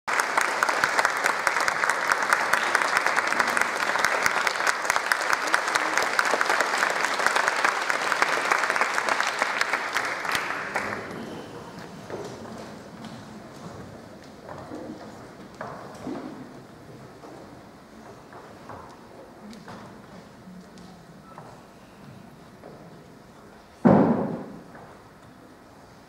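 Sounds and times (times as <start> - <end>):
audience applauding: 0.1 - 12.4.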